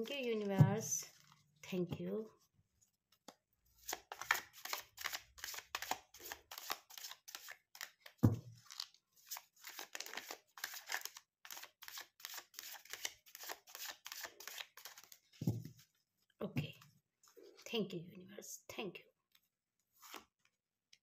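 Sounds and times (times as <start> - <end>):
cards shuffled by hand: 3.8 - 15.8, 20.0 - 20.3.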